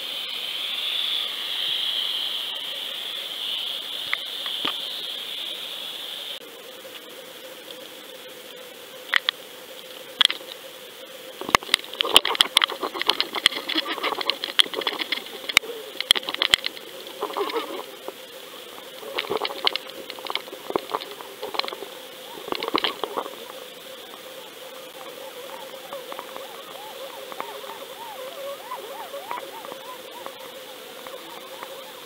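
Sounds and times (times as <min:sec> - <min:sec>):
camera electronic hum: 0:06.3 - 0:32.0
underwater clicks and rattles: 0:11.4 - 0:18.2, 0:19.0 - 0:23.4.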